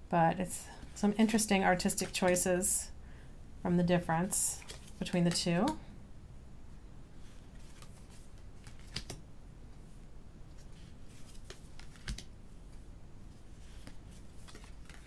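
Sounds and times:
cards sliding and clicking: 4.6s - 5.8s, 7.4s - 9.2s, 10.5s - 12.8s, 13.5s - 15.0s.

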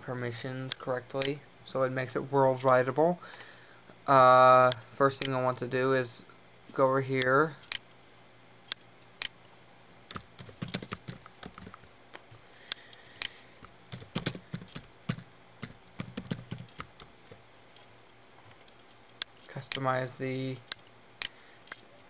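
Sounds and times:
typing on computer keyboard: 10.1s - 11.8s, 13.9s - 17.1s.

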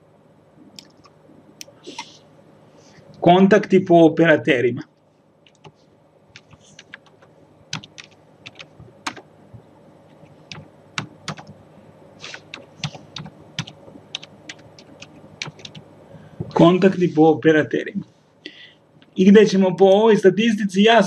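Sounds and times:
keyboard typing clicks: 0.8s - 1.1s, 5.5s - 5.8s, 6.4s - 9.2s, 10.5s - 11.6s, 12.3s - 15.8s.

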